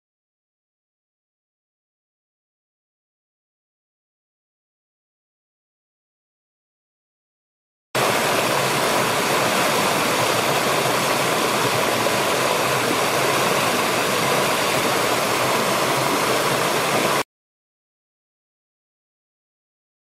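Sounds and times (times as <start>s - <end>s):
stream rushing over rocks: 8.0s - 17.2s.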